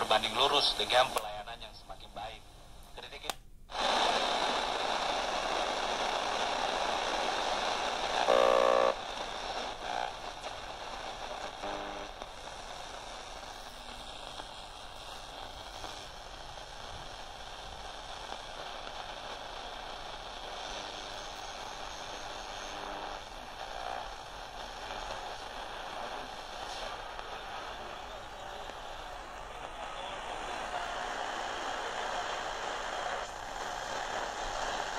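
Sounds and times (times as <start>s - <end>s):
radio stations breaking through: 0.0s - 2.4s, 3.0s - 16.3s, 18.1s - 34.9s
radio static hiss: 0.0s - 34.9s.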